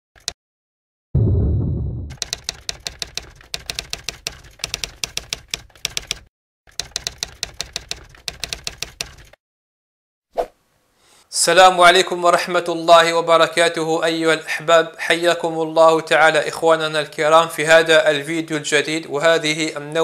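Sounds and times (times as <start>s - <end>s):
typewriter key clicks: 0.2s - 0.4s, 2.2s - 9.4s
low thump: 1.2s - 2.2s.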